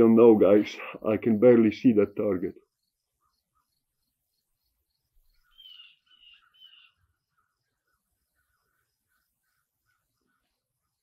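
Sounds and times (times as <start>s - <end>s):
faint repeating chirping: 2.6s - 11.0s
short bird chirps: 3.2s - 7.1s.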